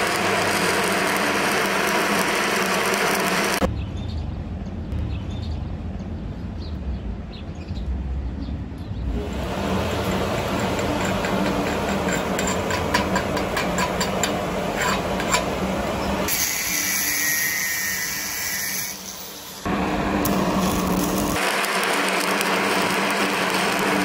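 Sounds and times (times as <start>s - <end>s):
angle grinder grinding metal: 0.0s - 3.7s, 9.2s - 24.0s
wire brush scraping steel: 10.4s - 15.6s.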